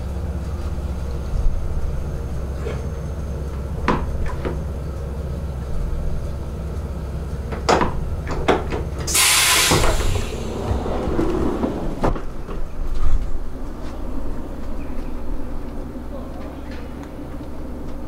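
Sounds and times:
train interior rumble: 0.0s - 18.0s
burst of hiss: 9.1s - 10.8s.

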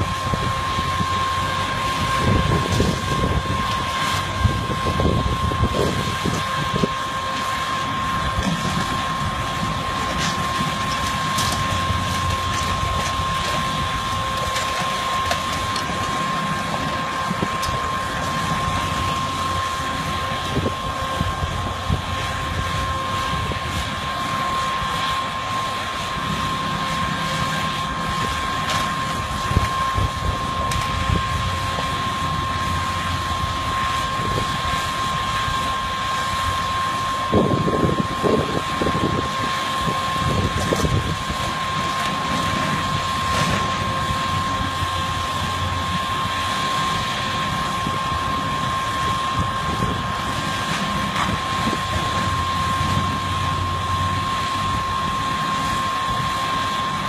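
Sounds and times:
heavy demolition machinery running: 0.0s - 57.0s
breaking material crunching: 8.3s - 19.2s.

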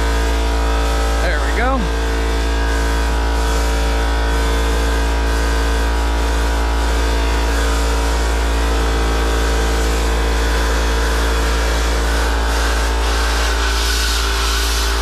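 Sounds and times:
air compressor motor hum: 0.0s - 15.0s
compressed air hissing: 12.6s - 15.0s.

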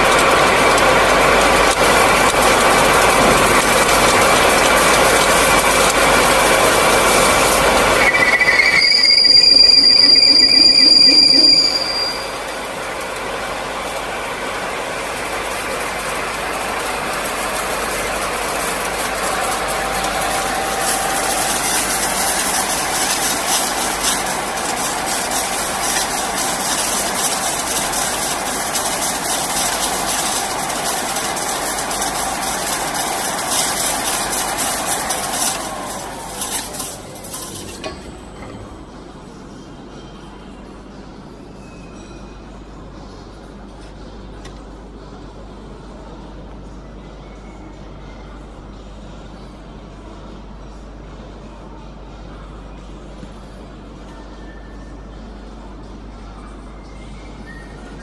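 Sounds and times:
pipe bevel machine running: 0.0s - 39.5s
loud high-pitched squeal: 6.2s - 12.8s, 18.0s - 39.0s.

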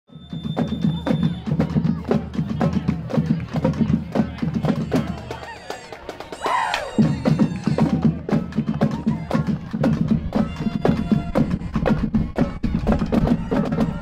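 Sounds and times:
drumline playing a cadence: 0.1s - 14.0s.

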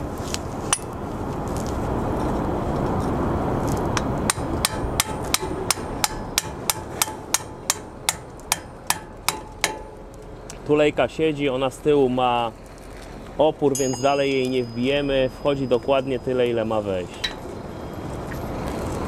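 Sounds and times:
hammer striking metal: 4.3s - 10.0s.

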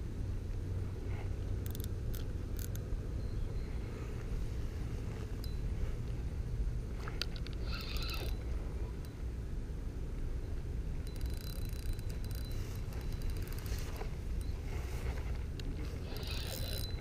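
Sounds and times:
reel clicks and rattle: 1.4s - 2.9s, 7.0s - 9.2s, 11.0s - 17.0s
reel cranking with clicks and whine: 1.6s - 2.8s, 7.2s - 9.2s, 11.0s - 14.5s, 16.0s - 17.0s.

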